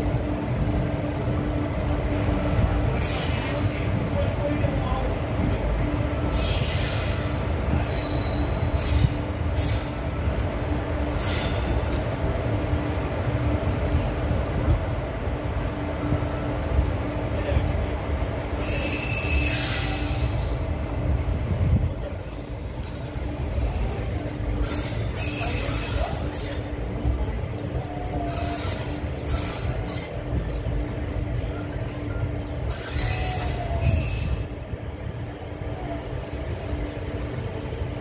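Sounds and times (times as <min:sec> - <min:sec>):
train wheels rumbling on rail: 0:00.0 - 0:38.0
high-pitched wheel squeals: 0:07.9 - 0:09.0, 0:18.6 - 0:20.6, 0:32.7 - 0:34.5.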